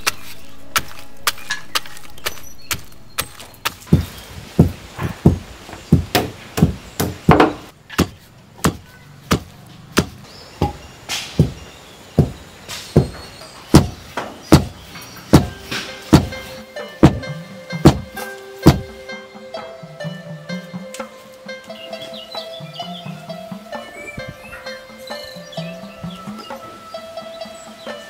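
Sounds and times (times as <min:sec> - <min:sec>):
pestle pounding in mortar: 0:00.0 - 0:19.0
faint background music: 0:00.0 - 0:28.0.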